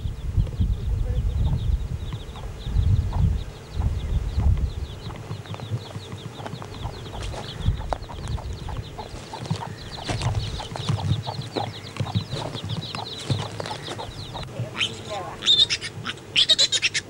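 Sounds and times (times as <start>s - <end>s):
chicks peeping: 0.0s - 17.0s
hen clucking: 1.1s - 17.0s
low thumps and rustling: 1.5s - 14.8s.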